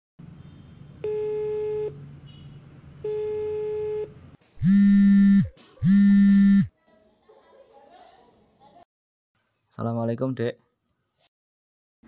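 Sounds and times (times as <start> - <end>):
telephone ringing tone beeps: 1.0 - 1.9, 3.1 - 6.7
mobile phone buzzing: 3.1 - 6.7.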